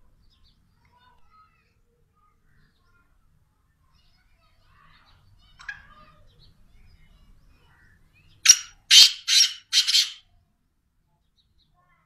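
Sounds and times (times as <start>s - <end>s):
francolin calling harsh notes: 8.5s - 10.2s.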